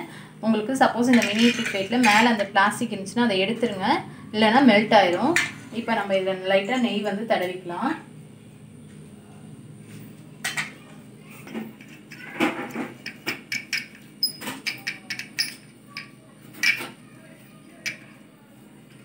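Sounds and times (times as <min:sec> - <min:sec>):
metal plates clinking: 0:01.1 - 0:02.4.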